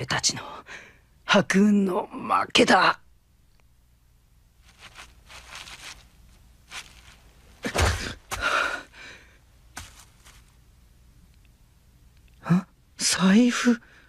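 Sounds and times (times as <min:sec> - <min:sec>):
footsteps on grass: 0:04.6 - 0:08.5, 0:09.7 - 0:10.6
heavy breathing: 0:07.6 - 0:09.4.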